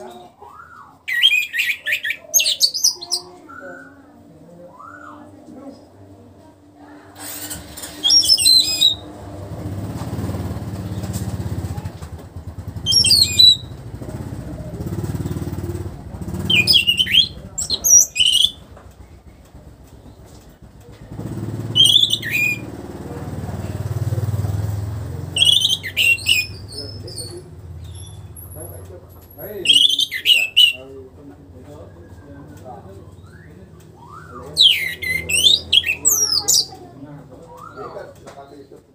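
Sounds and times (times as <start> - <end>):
low engine rumble: 3.0 - 38.9
thrush singing: 7.1 - 11.6, 12.4 - 19.3, 21.2 - 28.6, 29.5 - 31.1, 32.9 - 37.0.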